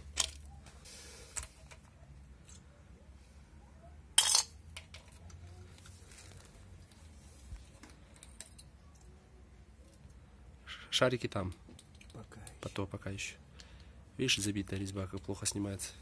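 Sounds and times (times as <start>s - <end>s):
metal tools clinking: 4.2s - 5.2s.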